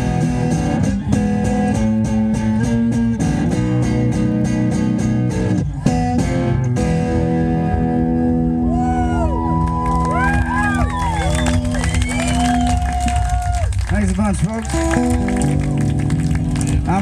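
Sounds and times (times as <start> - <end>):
acoustic guitar strumming: 0.0 - 8.8.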